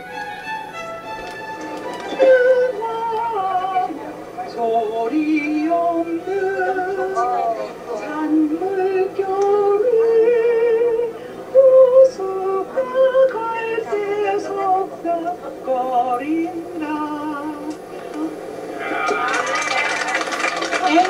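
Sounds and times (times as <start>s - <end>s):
women singing: 2.1s - 18.3s.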